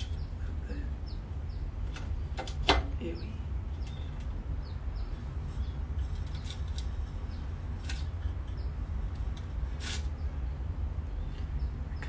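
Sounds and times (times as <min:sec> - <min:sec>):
pick scratching in a bong bowl: 0:05.4 - 0:10.1.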